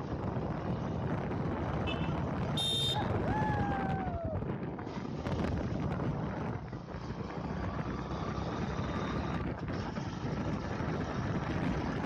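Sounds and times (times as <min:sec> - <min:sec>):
wind rushing over microphone: 0:00.0 - 0:12.0.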